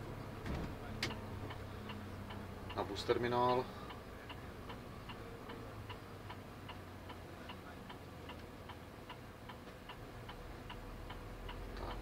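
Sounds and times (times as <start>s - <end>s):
low engine hum: 0.0s - 12.0s
turn signal ticking: 0.1s - 12.0s.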